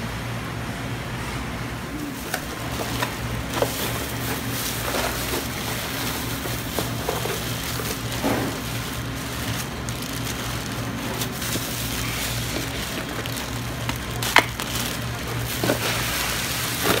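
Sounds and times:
machinery hum: 0:00.0 - 0:17.0
plastic bag rustling: 0:02.0 - 0:17.0
crushed ice crunching: 0:02.2 - 0:17.0.

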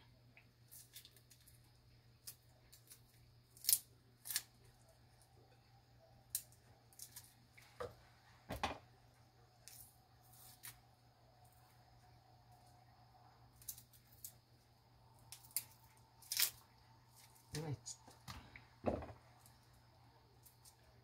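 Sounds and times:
knocking: 0:18.8 - 0:19.2.

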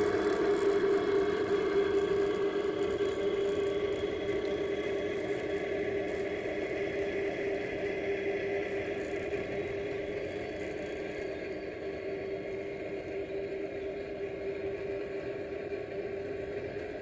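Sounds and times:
model train wheels rolling: 0:00.0 - 0:17.0
steady hum: 0:00.0 - 0:17.0.

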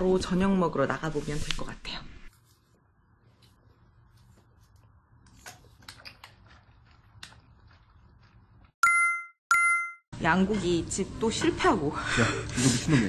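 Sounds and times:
two-tone ding: 0:08.8 - 0:10.0.

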